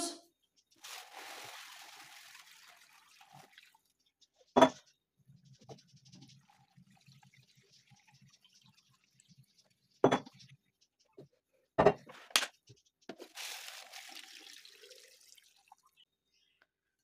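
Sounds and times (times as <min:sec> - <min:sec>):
water pouring into jar: 0:00.8 - 0:04.0, 0:06.1 - 0:09.9, 0:13.2 - 0:16.0.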